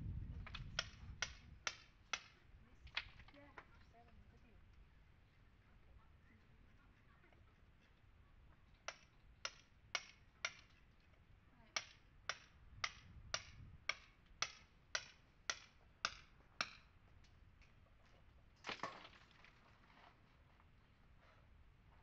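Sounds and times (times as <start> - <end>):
hammer tapping chisel: 8.8 - 10.8, 11.8 - 16.9.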